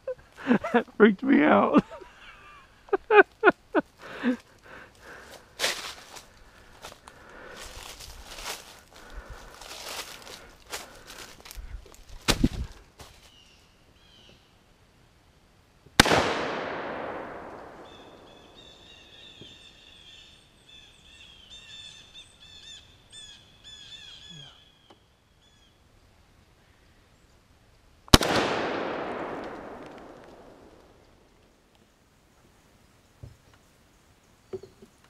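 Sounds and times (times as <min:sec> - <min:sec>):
gunshots with long echo: 0:16.0 - 0:19.2, 0:28.1 - 0:31.2.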